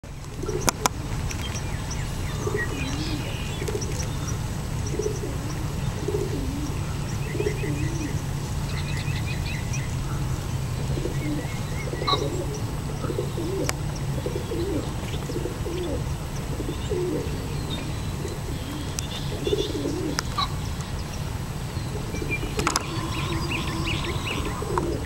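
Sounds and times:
songbirds chirping and trilling: 0.0s - 25.0s
pigeons cooing: 0.3s - 8.4s, 10.1s - 20.6s, 21.6s - 25.0s
steady low hum: 9.8s - 25.0s.

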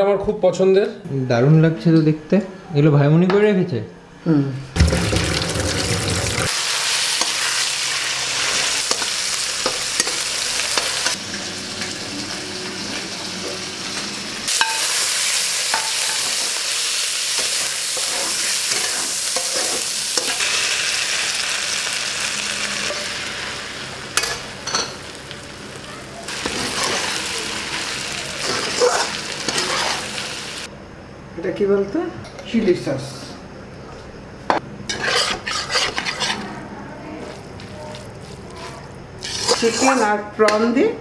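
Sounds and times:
noodles sizzling in a wok: 4.8s - 30.7s, 37.1s - 40.3s.

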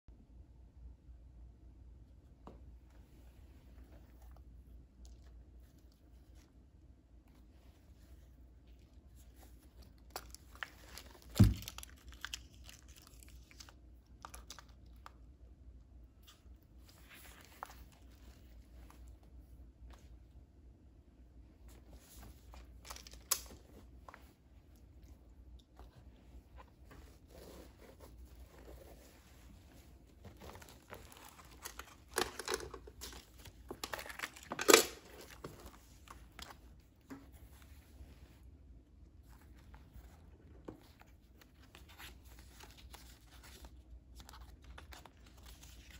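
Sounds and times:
paper and cover rustling: 25.7s - 38.5s, 39.2s - 45.9s.

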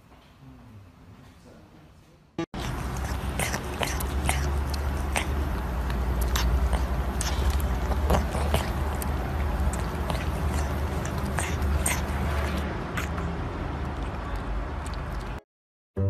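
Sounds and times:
kitten lapping milk: 2.6s - 15.4s.

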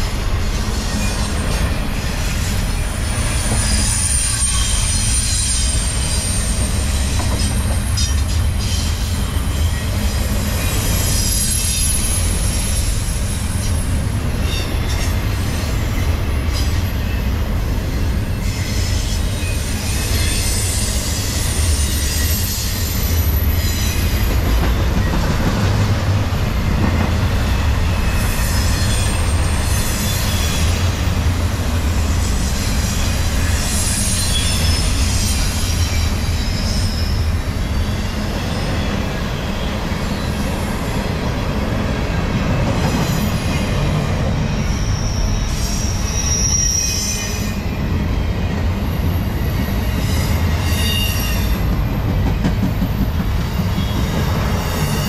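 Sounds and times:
steel wheels rumbling on rail: 0.0s - 55.0s
high-pitched wheel squeals: 0.7s - 15.4s, 18.2s - 24.3s, 32.3s - 40.4s, 44.5s - 47.7s.

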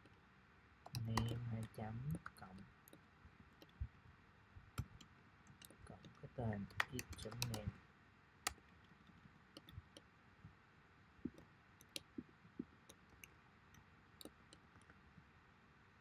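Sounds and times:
keyboard keystrokes: 0.9s - 3.0s, 4.8s - 7.7s
mouse clicks: 0.9s - 3.0s, 4.8s - 7.7s, 8.4s - 10.1s, 11.2s - 15.0s.

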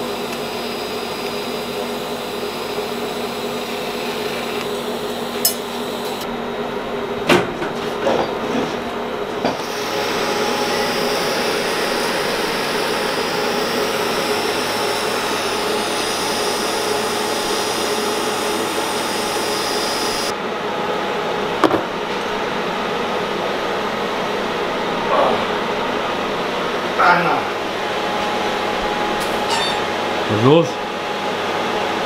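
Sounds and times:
welding arc hissing with whine: 0.0s - 6.3s, 9.6s - 20.3s.

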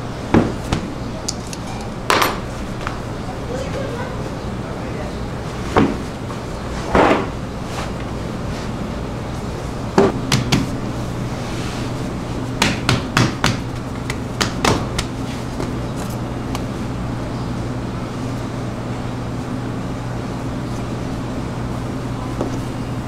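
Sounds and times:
knocks on dough and worktop: 10.0s - 10.7s, 12.6s - 15.7s.

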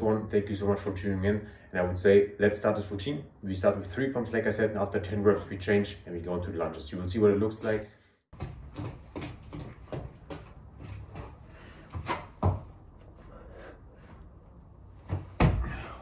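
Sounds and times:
hands and feet thudding on mat: 15.0s - 15.8s.

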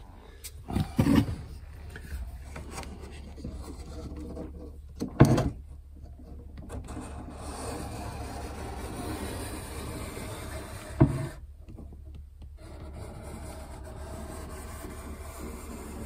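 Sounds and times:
wooden block scraping along wood: 0.7s - 4.8s, 6.3s - 11.5s, 12.5s - 16.0s.

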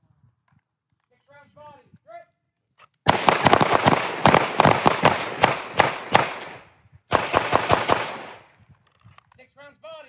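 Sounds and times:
handgun shots echoing: 3.1s - 8.5s.

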